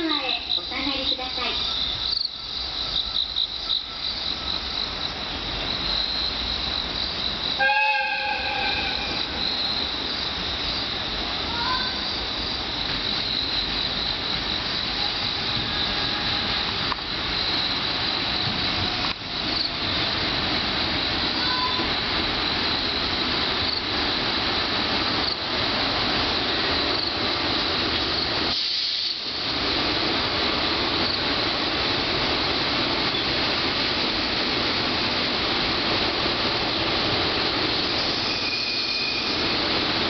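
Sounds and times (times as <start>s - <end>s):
insects chirping: 0.0s - 40.0s
distant train horn: 7.6s - 9.5s, 14.9s - 16.8s, 21.4s - 21.9s, 38.1s - 39.5s.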